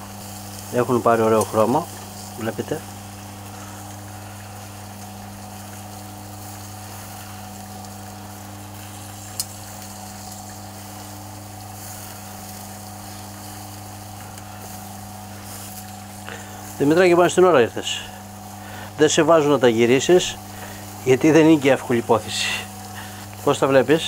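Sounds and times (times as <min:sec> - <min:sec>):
meat sizzling on a grill: 0:00.0 - 0:24.0
steady low hum: 0:00.0 - 0:24.0.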